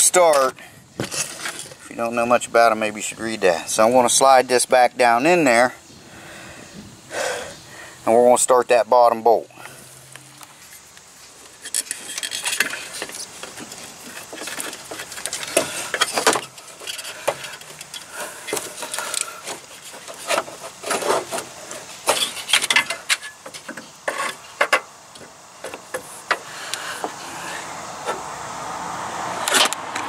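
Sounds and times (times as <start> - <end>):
metal clinks and knocks: 11.5 - 26.5.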